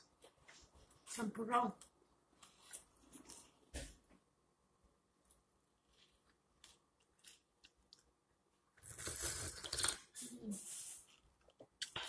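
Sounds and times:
person slurping drink: 0:08.8 - 0:11.0.

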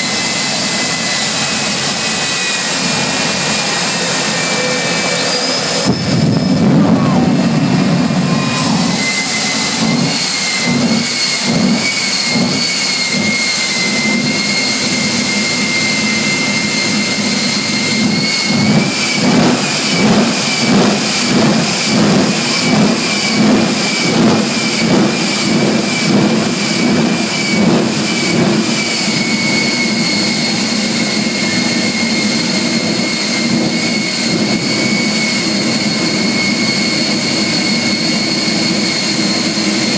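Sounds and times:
jet engine whining: 0:00.0 - 0:39.9
pulsing flame bursts: 0:00.1 - 0:39.9.

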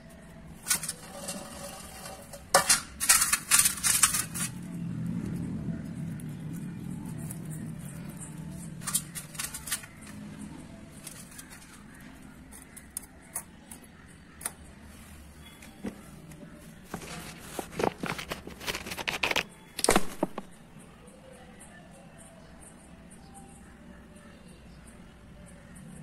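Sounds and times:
garlic clattering on steel plate: 0:00.6 - 0:04.6, 0:08.8 - 0:10.1.

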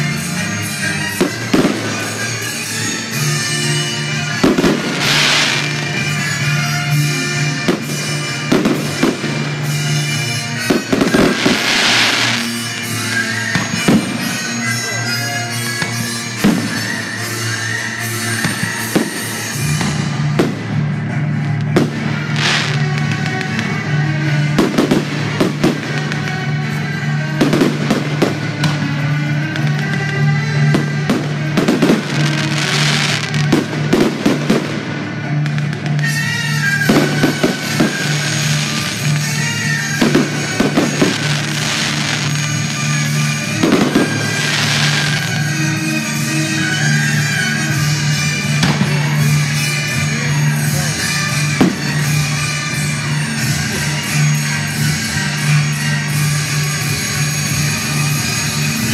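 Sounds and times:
fireworks bursting: 0:00.0 - 0:58.9
high hiss of fireworks: 0:00.0 - 0:58.9
music playing: 0:00.0 - 0:58.9
firework shells bursting: 0:01.2 - 0:14.8, 0:21.8 - 0:26.8
hissing firework burst: 0:04.4 - 0:06.6.

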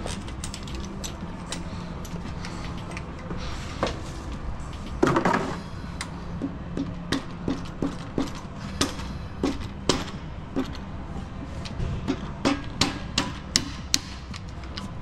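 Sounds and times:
metal parts clattering: 0:00.0 - 0:05.6.

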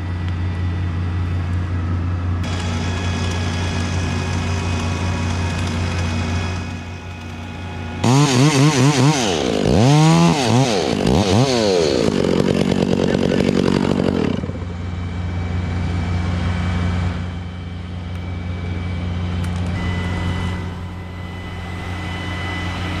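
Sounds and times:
chainsaw cutting through trunk: 0:02.4 - 0:14.7
chainsaw engine idling: 0:02.4 - 0:16.4
faint high steady tone: 0:17.4 - 0:23.0.

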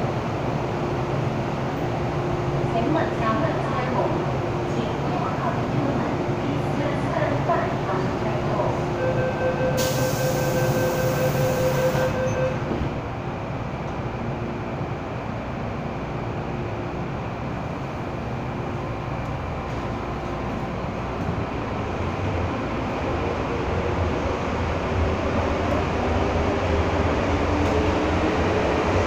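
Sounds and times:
train running rumble: 0:00.0 - 0:29.0
door warning tone: 0:09.0 - 0:12.8.

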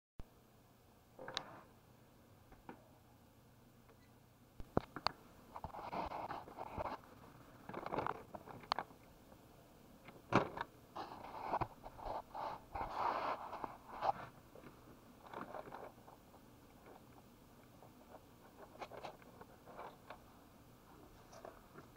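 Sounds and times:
plastic toy rustling and scraping: 0:05.5 - 0:07.0, 0:07.7 - 0:08.9, 0:10.5 - 0:20.2.

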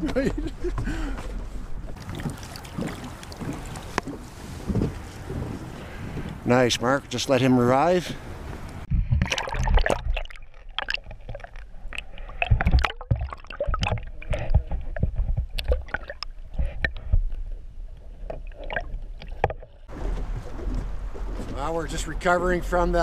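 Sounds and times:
underwater water sloshing and gurgling: 0:01.2 - 0:06.3, 0:08.8 - 0:21.6
knocks and pops underwater: 0:08.9 - 0:17.4.

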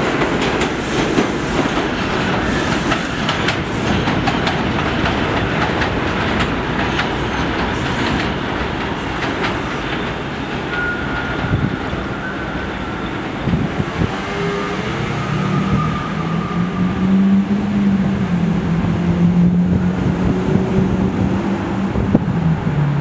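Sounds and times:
train on elevated track: 0:00.0 - 0:23.0
road traffic hum: 0:12.6 - 0:23.0.

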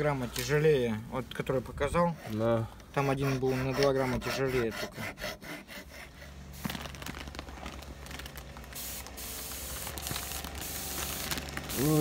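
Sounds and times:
rubbing strokes: 0:01.9 - 0:06.8
spraying hiss: 0:08.7 - 0:12.0.

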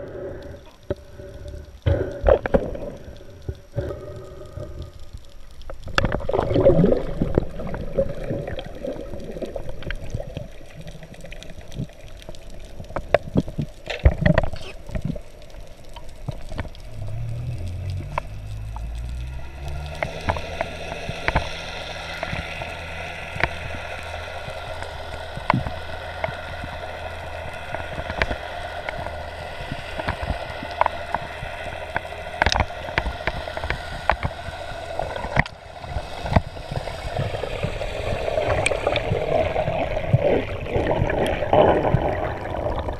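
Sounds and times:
water gurgling underwater: 0:00.0 - 0:05.0, 0:05.7 - 0:42.9
steady hum with held tones: 0:14.6 - 0:42.9.

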